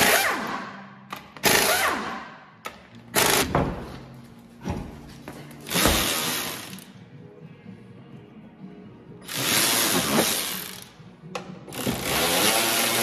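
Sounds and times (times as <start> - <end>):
impact wrench spinning lug nuts: 9.3 - 11.0, 11.7 - 13.0.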